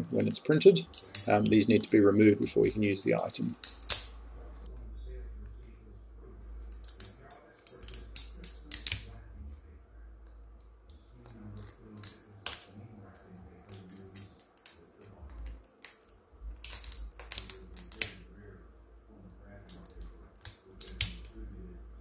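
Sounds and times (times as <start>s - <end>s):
cutters snipping plastic: 19.6s - 21.4s.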